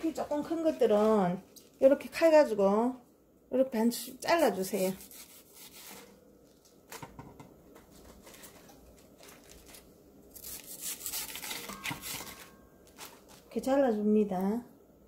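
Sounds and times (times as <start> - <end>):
knife cutting crisp cabbage leaves: 4.3 - 6.1, 7.9 - 13.4.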